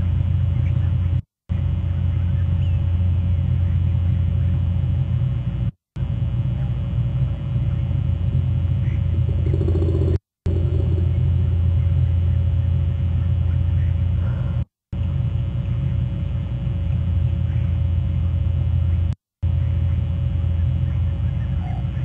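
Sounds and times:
steady low rumble: 0.0 - 14.4.

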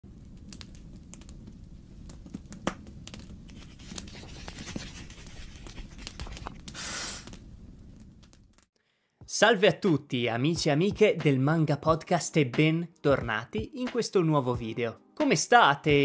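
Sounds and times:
papery crackles and clicks: 2.1 - 8.7
book pages rustling and turning: 3.5 - 7.4.

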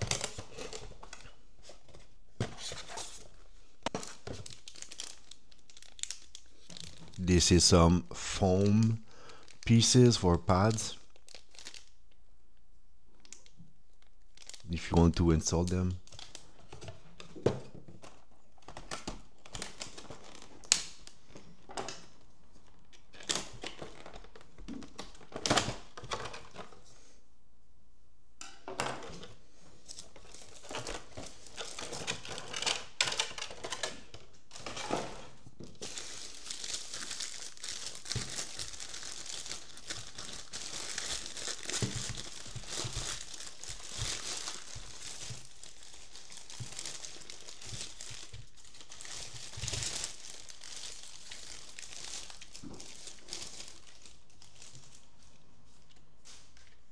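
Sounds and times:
plastic packaging crinkling: 0.0 - 7.6, 8.7 - 12.2, 13.2 - 17.3, 18.0 - 21.3, 29.8 - 55.9.

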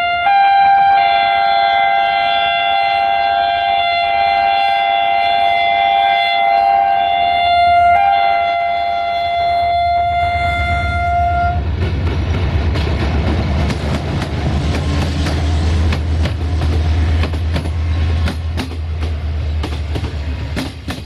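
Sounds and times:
locomotive horn chord: 0.0 - 11.6
locomotive engine rumble: 3.6 - 21.0
wheels clicking over rail joints: 11.6 - 21.0.

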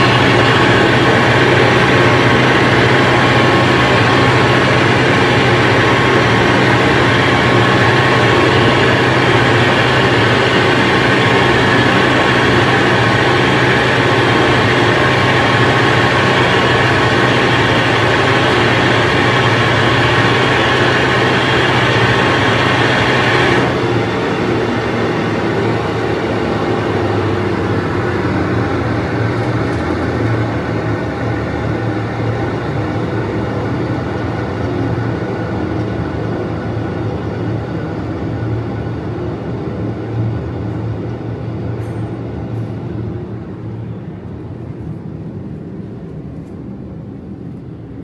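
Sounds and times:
meat grinder mechanical hum: 0.0 - 37.5.

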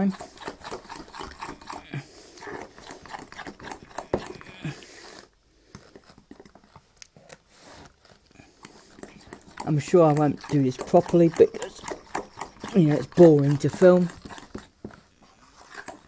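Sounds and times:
utensil clicking and scraping bowl: 0.0 - 16.0.

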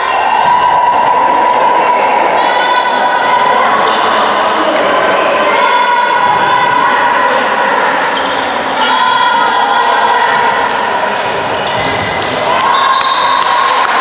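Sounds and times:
shoes squeaking: 11.5 - 12.4.

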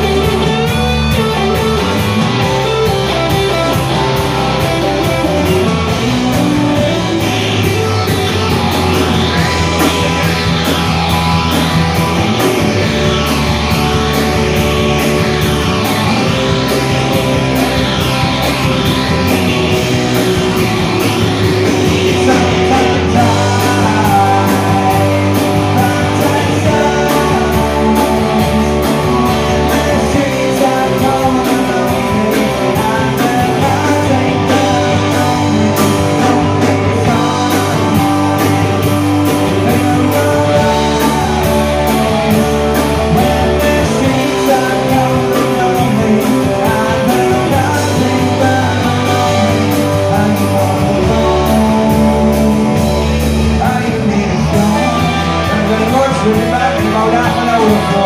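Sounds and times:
drums: 0.0 - 58.0
electric guitars: 0.0 - 58.0
man singing into microphone: 22.1 - 41.9, 43.1 - 58.0.

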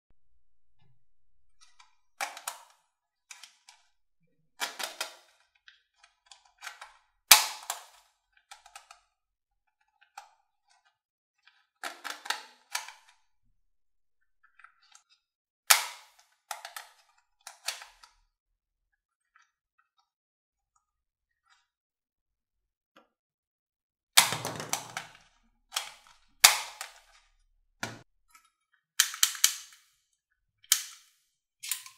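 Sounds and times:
plastic toy gun clicks: 2.2 - 3.8, 4.6 - 5.3, 6.6 - 9.0, 15.7 - 18.0, 24.2 - 25.2, 25.8 - 27.2, 29.0 - 30.0, 30.7 - 31.9
plastic snaps: 24.2 - 27.0, 29.0 - 29.9, 30.7 - 31.9.

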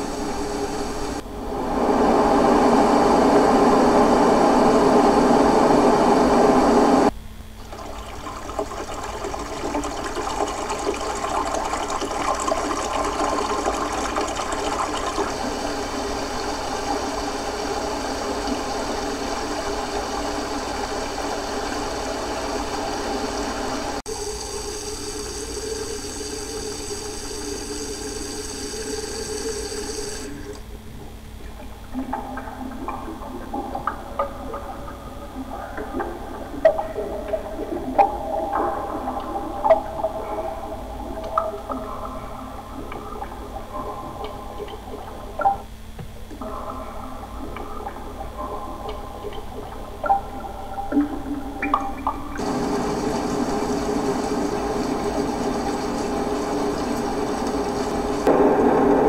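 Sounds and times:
hissy water sound: 0.0 - 45.7, 46.4 - 59.0
soft grainy water noise: 0.0 - 59.0
loud rushing water: 52.4 - 59.0.

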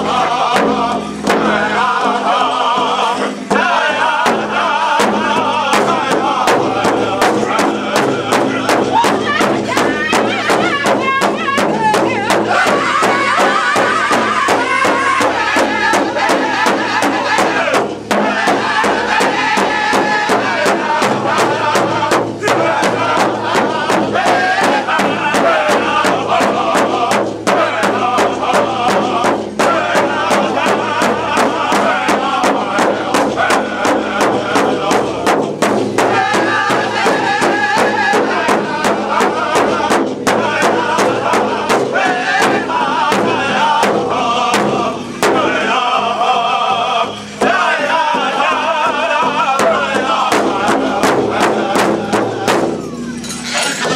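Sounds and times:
group singing: 0.0 - 53.9
large drum beating: 0.0 - 53.9.

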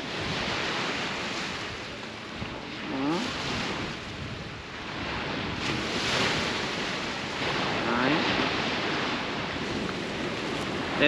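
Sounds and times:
surf washing onto shore: 0.0 - 11.0
wind on microphone: 0.0 - 11.0.

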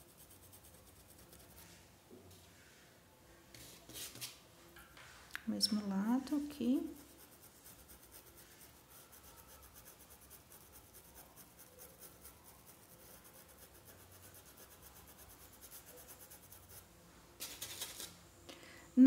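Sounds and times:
paintbrush scratching on fabric: 0.0 - 1.9, 6.8 - 18.1.

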